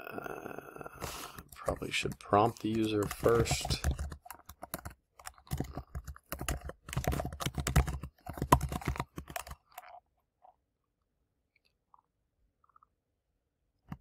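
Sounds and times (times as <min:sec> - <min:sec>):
typing on a computer keyboard: 0:02.4 - 0:09.9.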